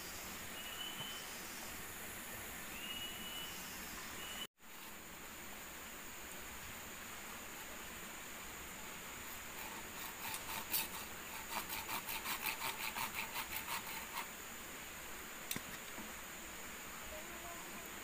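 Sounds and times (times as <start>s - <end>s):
machete sawing bamboo: 9.3s - 14.3s.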